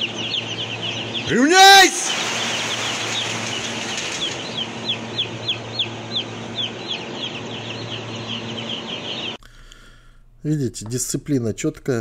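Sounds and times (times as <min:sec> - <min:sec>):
steady low hum: 0:00.0 - 0:01.5, 0:02.1 - 0:12.0
chicks peeping: 0:00.0 - 0:09.4.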